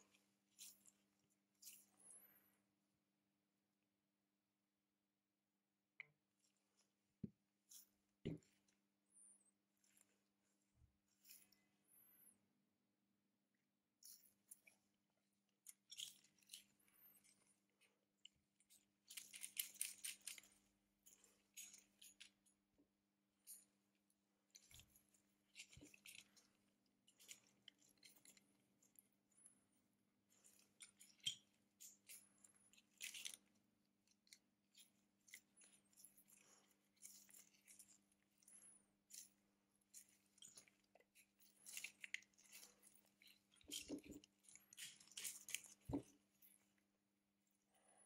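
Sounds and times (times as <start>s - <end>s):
small tools clicking and tapping: 15.6s - 22.6s, 30.3s - 46.7s.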